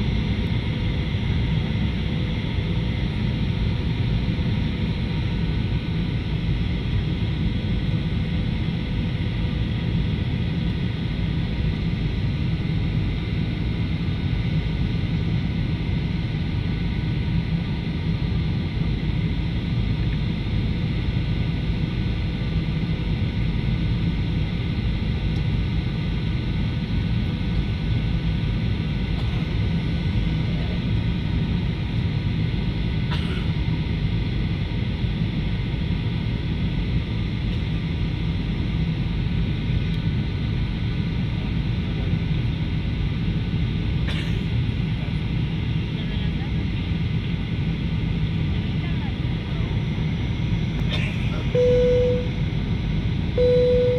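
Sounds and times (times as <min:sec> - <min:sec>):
airliner engines rumbling: 0:00.0 - 0:53.9
faint steady tones: 0:51.5 - 0:52.4, 0:53.4 - 0:53.9.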